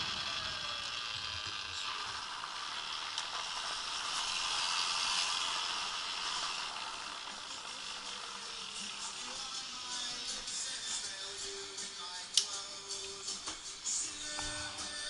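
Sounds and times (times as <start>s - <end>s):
bike tyres rolling over gravel: 0.0s - 10.2s.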